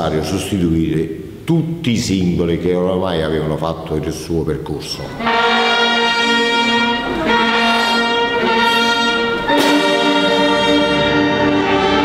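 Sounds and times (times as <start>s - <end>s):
brass band playing chords: 5.1s - 12.0s.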